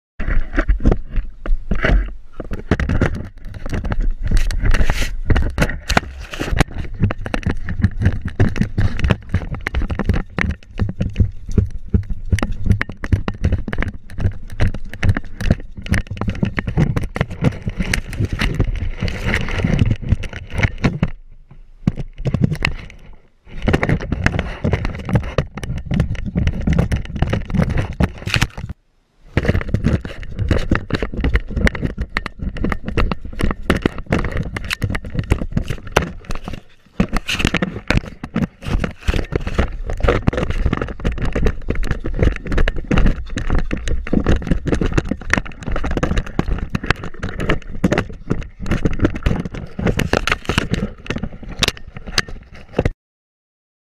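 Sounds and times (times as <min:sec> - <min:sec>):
camera mount knocking and rubbing: 0:00.2 - 0:21.2, 0:21.8 - 0:53.0.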